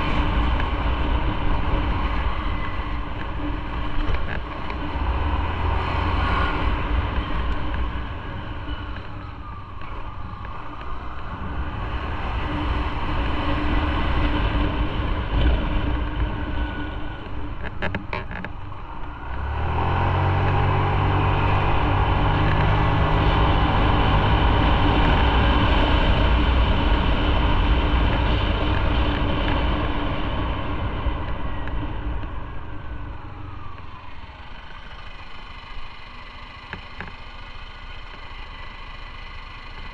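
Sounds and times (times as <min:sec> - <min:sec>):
road and wind noise: 0:00.0 - 0:39.9
motorcycle engine running: 0:20.3 - 0:39.9.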